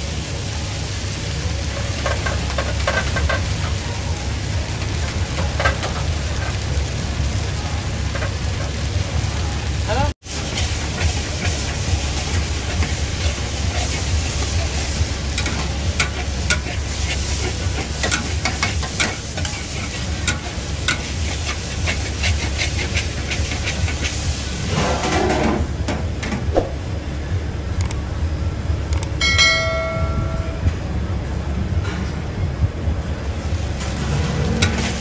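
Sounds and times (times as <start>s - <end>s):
noodles sizzling in a wok: 0.0s - 24.8s, 33.4s - 35.0s
ladle scraping against wok: 10.3s - 25.7s
low rumble: 25.6s - 35.0s.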